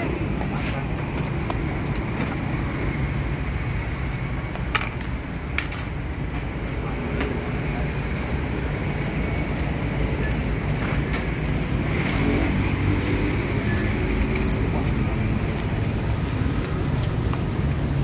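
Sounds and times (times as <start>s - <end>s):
street traffic rumble: 0.0s - 18.0s.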